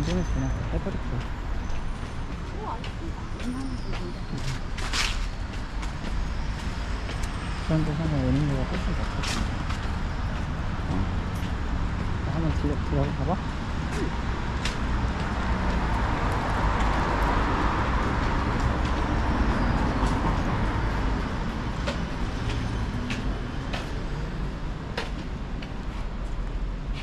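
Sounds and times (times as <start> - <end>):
road traffic rumble: 0.0 - 27.0.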